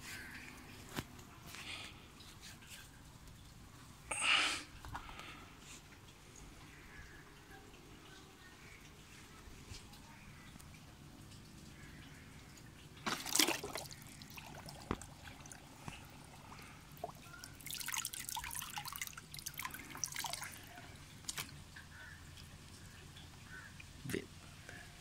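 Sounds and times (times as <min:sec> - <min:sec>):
water dripping: 0:00.0 - 0:25.0
water splashing: 0:05.0 - 0:24.2.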